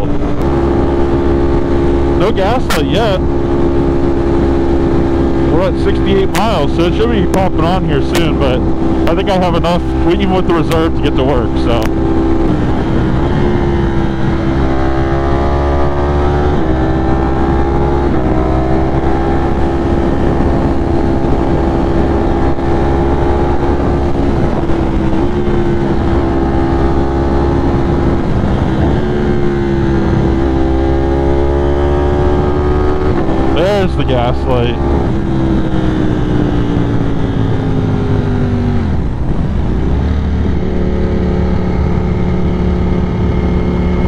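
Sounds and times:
motorcycle engine cruising: 0.0s - 44.0s.

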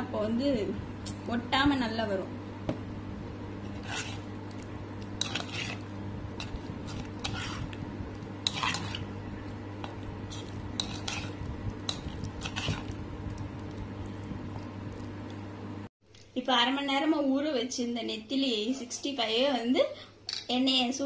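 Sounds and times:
spoon scraping and squelching in bowl: 3.6s - 13.9s.

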